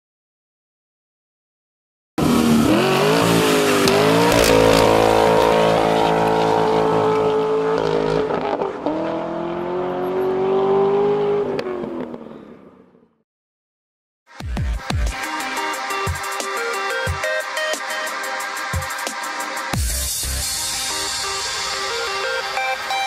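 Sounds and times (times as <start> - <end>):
car engine accelerating hard: 2.2 - 12.4.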